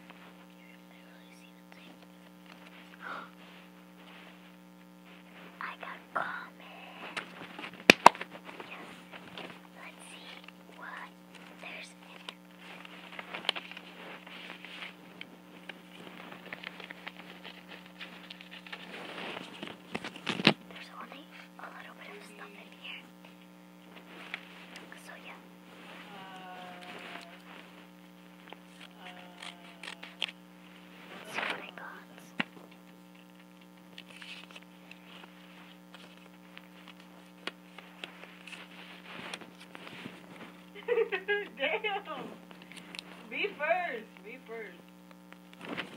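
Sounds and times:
faint low hum: 0:00.0 - 0:45.9
paper crinkling: 0:01.8 - 0:21.0, 0:21.6 - 0:43.5, 0:44.9 - 0:45.9.

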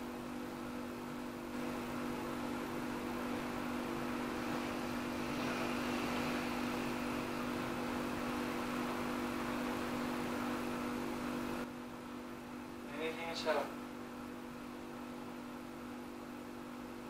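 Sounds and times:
machine-like hum: 0:00.0 - 0:17.0
even hiss: 0:02.8 - 0:10.7.

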